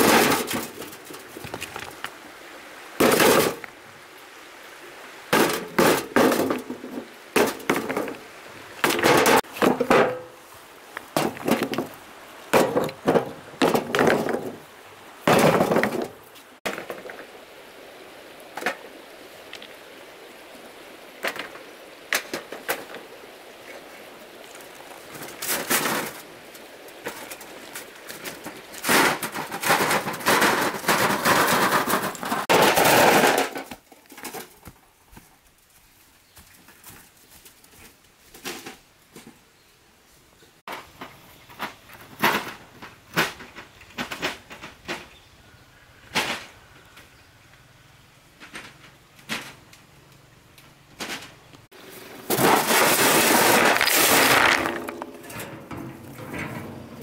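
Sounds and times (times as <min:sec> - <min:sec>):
stones clanking into metal wheelbarrow: 0:00.0 - 0:02.2, 0:03.0 - 0:03.7, 0:05.3 - 0:10.4, 0:11.1 - 0:17.3, 0:21.2 - 0:23.0, 0:23.7 - 0:34.8, 0:40.7 - 0:45.2, 0:51.0 - 0:57.0
shallow river rushing: 0:00.0 - 0:32.5.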